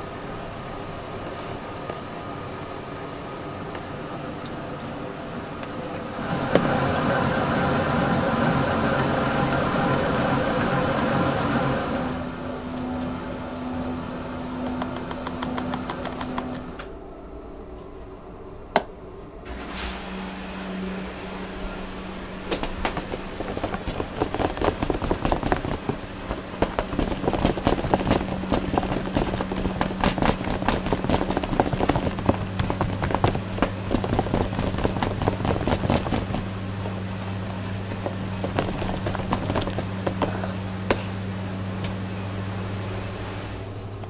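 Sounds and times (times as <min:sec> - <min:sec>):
steady hum: 0:00.0 - 0:44.0
mixer motor whisking: 0:06.1 - 0:12.4, 0:22.0 - 0:40.6
spatula scraping plastic tub: 0:37.3 - 0:41.0.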